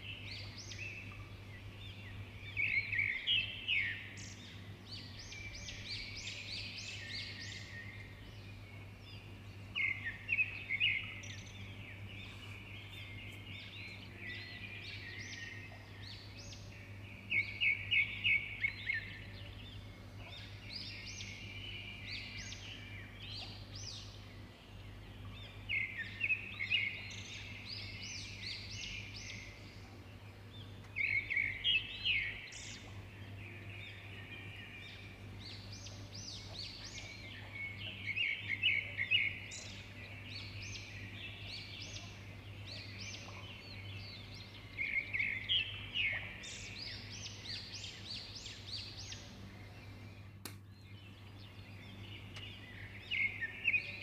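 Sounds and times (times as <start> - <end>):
low steady hum: 0.0 - 54.0
small birds chirping: 0.0 - 54.0.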